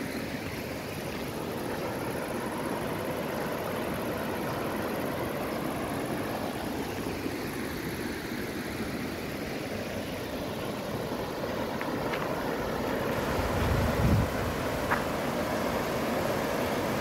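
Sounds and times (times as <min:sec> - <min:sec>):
water rushing down weir: 0:04.2 - 0:17.0.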